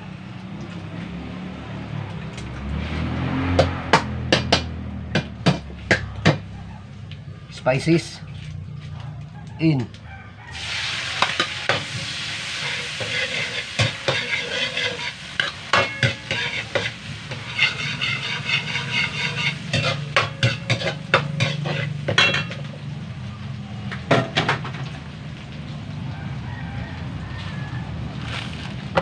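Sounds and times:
vegetables sizzling in oil: 0:10.5 - 0:25.9
metal ladle scraping a wok: 0:10.6 - 0:22.8.

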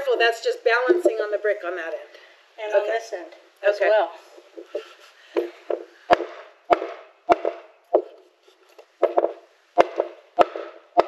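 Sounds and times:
hammer knocking on wooden board: 0:04.6 - 0:08.2, 0:09.0 - 0:11.0.

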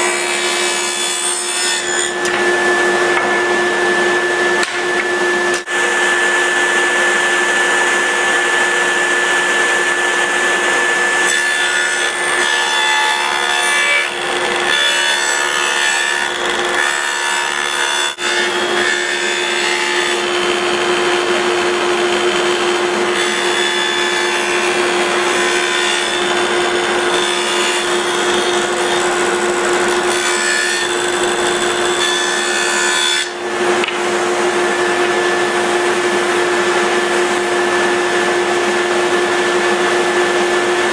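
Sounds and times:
power tool motor whine: 0:02.2 - 0:11.4, 0:13.3 - 0:14.9, 0:15.7 - 0:16.9, 0:27.8 - 0:30.1.

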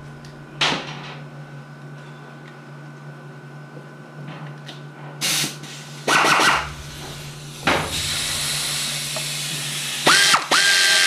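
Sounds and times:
faint motor whine: 0:00.0 - 0:11.0
compressed air hissing: 0:05.2 - 0:10.4.

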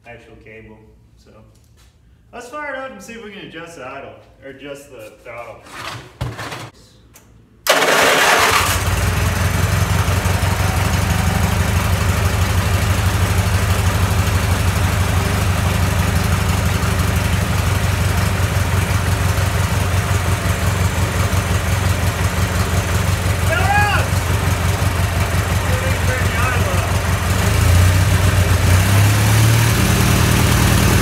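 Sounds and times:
mower engine starting and running: 0:07.7 - 0:31.0.

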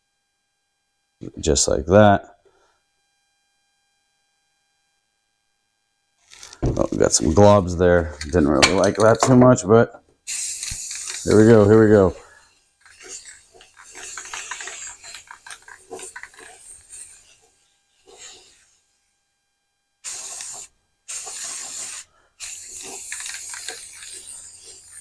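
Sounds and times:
spray hiss bursts: 0:10.2 - 0:18.8, 0:20.0 - 0:25.0
spray can rattling and clicking: 0:10.3 - 0:11.7, 0:12.8 - 0:17.4, 0:20.1 - 0:25.0.

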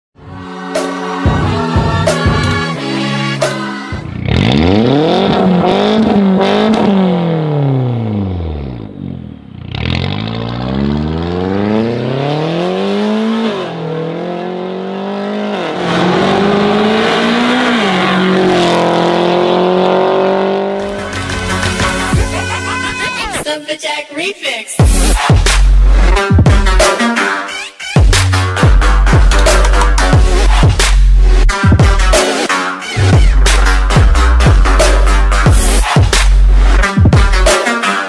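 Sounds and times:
car engine revving: 0:04.0 - 0:22.6
car accelerating through gears: 0:04.2 - 0:21.0.

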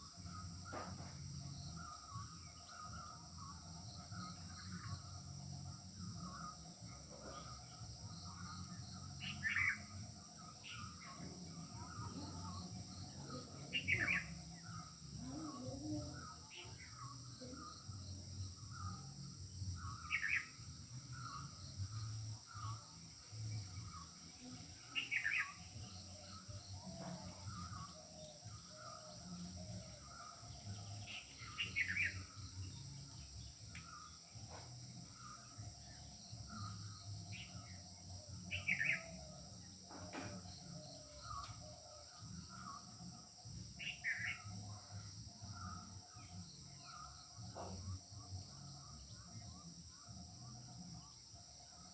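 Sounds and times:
bird chirps: 0:00.0 - 0:51.1
trilled bird calls: 0:06.1 - 0:19.1, 0:19.7 - 0:48.0.

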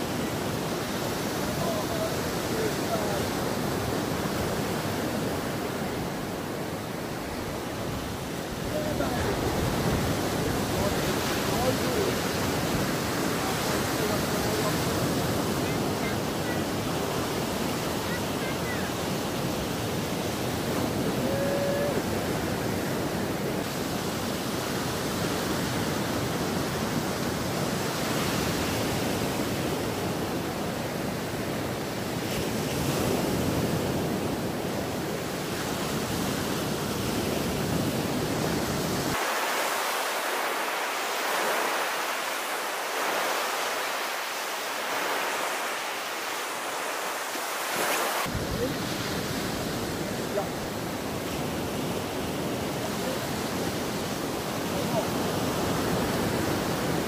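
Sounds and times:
wind buffeting microphone: 0:00.0 - 0:39.2
surf breaking on beach: 0:00.0 - 0:57.0.

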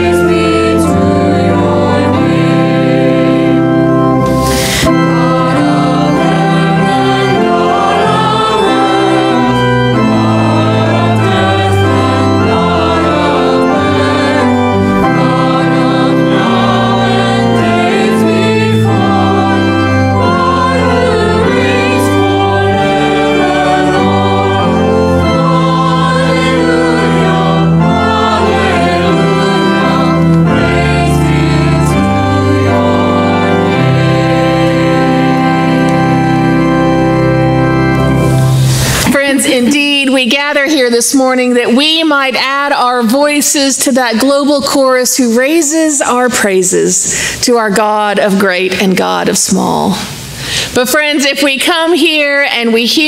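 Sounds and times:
organ: 0:00.0 - 0:42.0
voices singing a hymn: 0:00.0 - 0:42.4.

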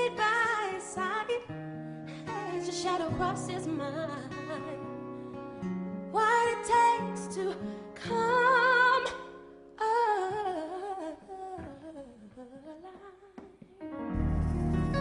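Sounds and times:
wordless vocal with vibrato: 0:02.1 - 0:04.9
loud low chord: 0:14.1 - 0:15.0.

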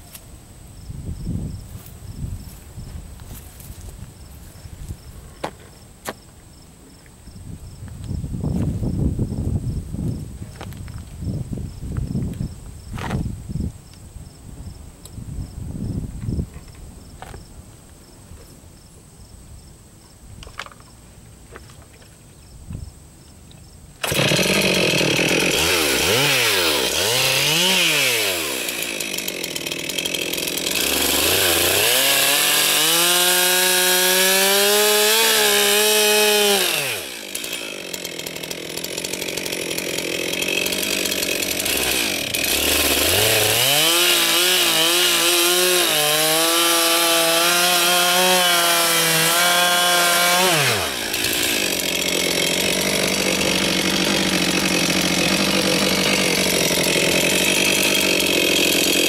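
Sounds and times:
chainsaw revving and cutting wood: 0:24.0 - 0:59.0.

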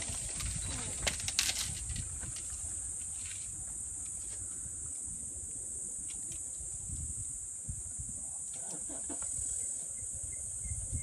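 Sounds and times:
wood cracking: 0:00.0 - 0:02.6
insects droning: 0:00.0 - 0:11.0.

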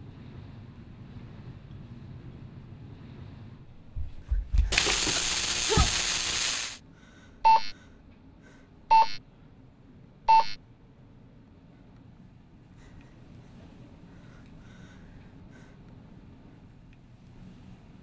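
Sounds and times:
rush of hiss-like noise: 0:04.7 - 0:06.8
short electronic beeps: 0:07.5 - 0:07.7, 0:08.9 - 0:09.2, 0:10.3 - 0:10.6.

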